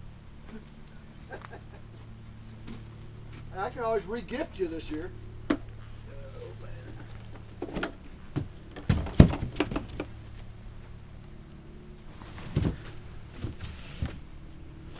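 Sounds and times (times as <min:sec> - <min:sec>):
low steady hum: 0:00.0 - 0:14.9.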